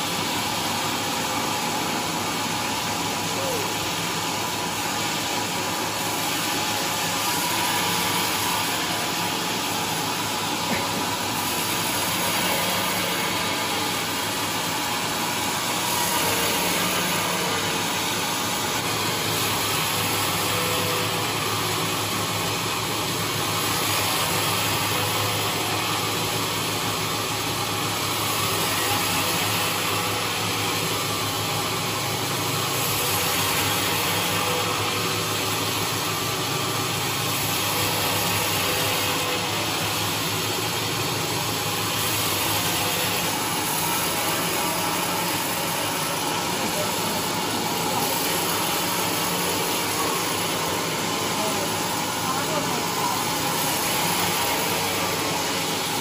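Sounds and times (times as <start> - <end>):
band saw cutting wood: 0.0 - 56.0.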